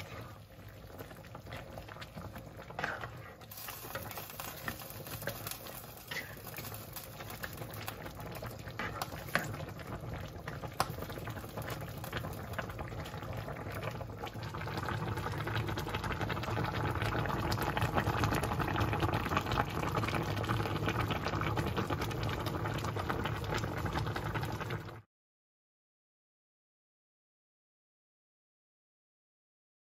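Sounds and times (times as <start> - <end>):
soup boiling in a pan: 0.0 - 25.1.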